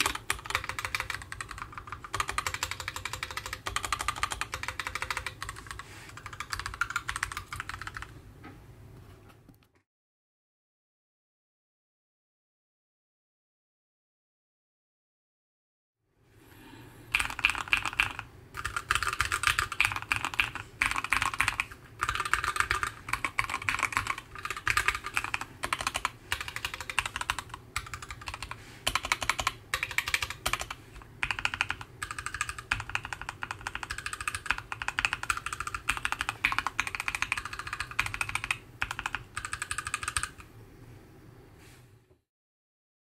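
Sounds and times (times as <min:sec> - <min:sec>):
mechanical keyboard typing: 0:00.0 - 0:08.2, 0:17.1 - 0:40.5.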